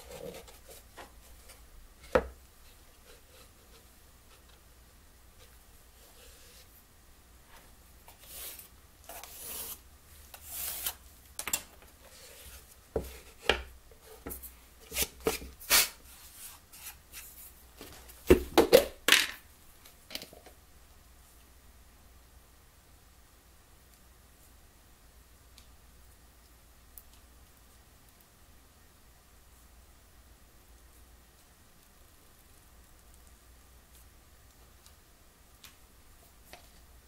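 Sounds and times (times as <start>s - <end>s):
wood parts rubbing and sliding: 5.4s - 6.7s
wooden pieces knocking and clattering: 18.3s - 19.4s.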